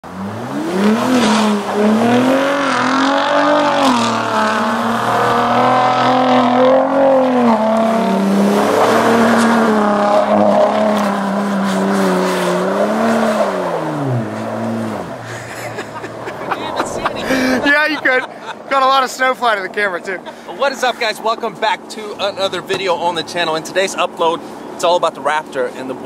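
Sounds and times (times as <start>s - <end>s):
truck engine revving hard: 0.0s - 18.9s.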